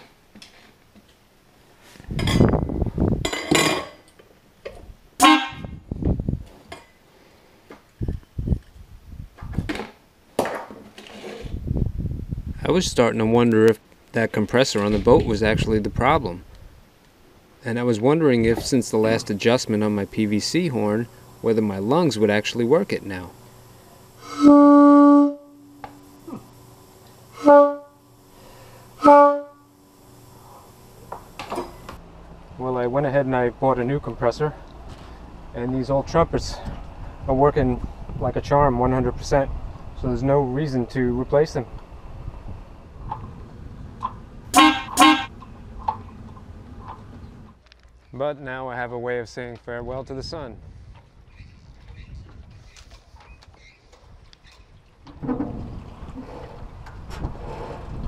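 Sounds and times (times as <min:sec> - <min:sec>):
air horn blasts: 0:05.2 - 0:05.8, 0:24.1 - 0:26.4, 0:27.3 - 0:29.9, 0:44.5 - 0:45.4.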